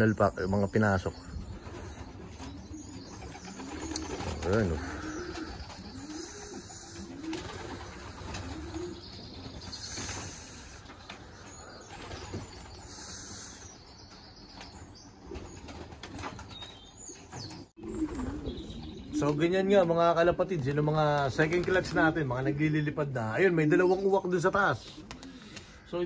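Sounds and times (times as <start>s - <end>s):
pigeon cooing: 1.8s - 13.8s, 17.8s - 19.2s
pigeon wings flapping: 2.3s - 11.3s, 15.3s - 16.7s, 20.6s - 22.2s.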